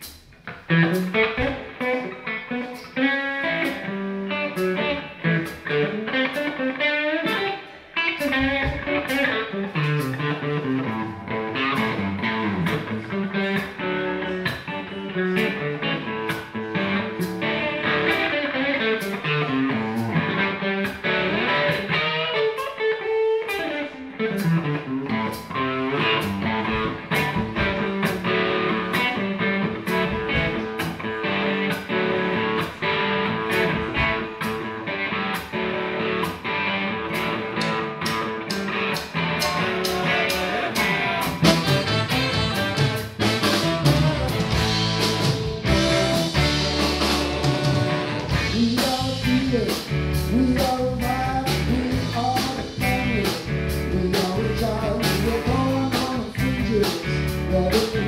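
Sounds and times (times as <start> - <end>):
electric guitar: 0.0 - 58.0
funk-blues band playing: 0.0 - 58.0
steady drum beat: 26.1 - 34.8, 37.1 - 58.0
saxophones: 39.4 - 48.5.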